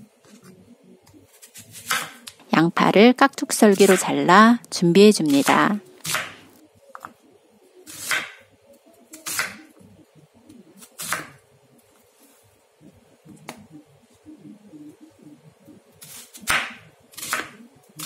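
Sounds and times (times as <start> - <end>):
knife cutting onion: 1.1 - 2.3, 3.6 - 4.3, 5.2 - 7.1, 7.9 - 8.5, 9.1 - 9.7, 10.8 - 11.4, 16.0 - 18.0.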